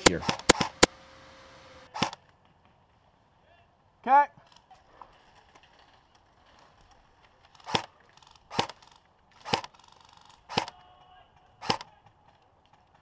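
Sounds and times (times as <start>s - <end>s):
airsoft gun shots cracking: 0.0s - 1.0s, 7.6s - 7.9s, 8.5s - 8.8s, 9.4s - 9.7s, 10.4s - 10.8s, 11.6s - 11.9s.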